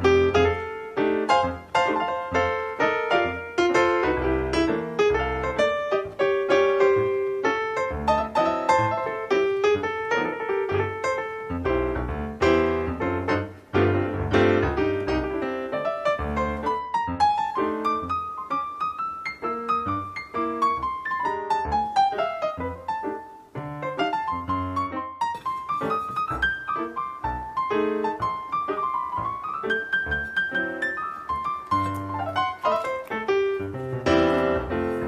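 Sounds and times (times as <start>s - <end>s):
piano music: 0.0s - 35.0s.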